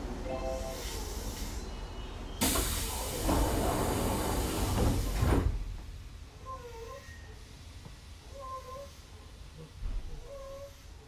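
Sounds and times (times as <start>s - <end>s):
train doors hissing air: 0.3s - 5.7s.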